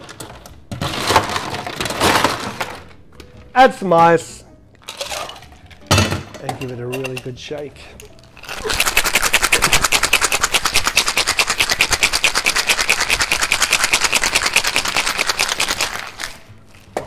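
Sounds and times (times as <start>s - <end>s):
ice rattling in cocktail shaker: 4.8s - 5.8s, 8.3s - 16.5s.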